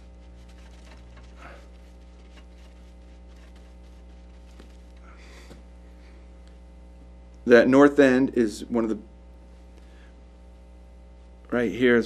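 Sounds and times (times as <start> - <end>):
paintbrush brushing on canvas: 0.0 - 5.1
low electrical hum: 0.0 - 12.0.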